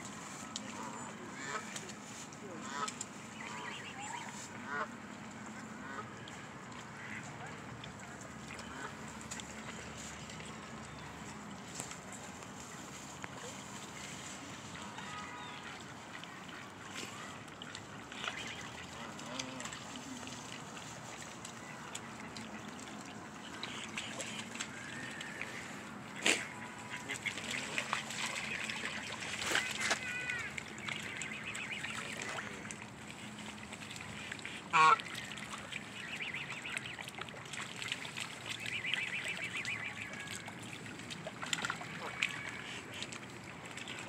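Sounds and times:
geese chatter: 0.1s - 7.8s, 8.5s - 11.4s, 12.2s - 37.1s, 38.4s - 40.8s, 41.5s - 43.2s
geese honking: 2.6s - 4.9s, 23.4s - 32.4s, 34.2s - 35.1s, 36.0s - 37.0s, 38.6s - 40.4s.

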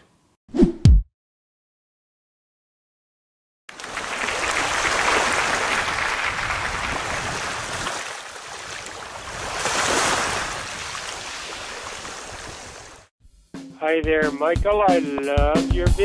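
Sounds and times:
ocean surf washing in: 3.7s - 13.1s.

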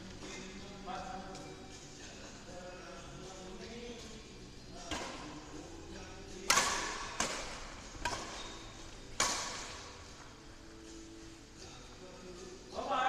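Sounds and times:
rackets hitting shuttlecock: 4.8s - 10.3s.

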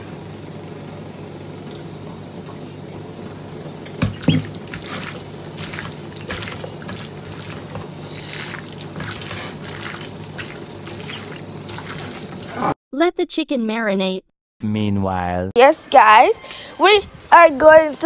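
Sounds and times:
hands squelching raw chicken: 3.9s - 12.7s.

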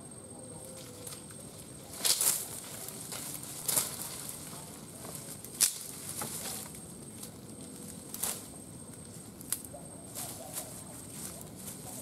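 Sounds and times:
leaves and twigs rustling: 0.5s - 12.0s
twigs snapping: 2.0s - 9.7s.

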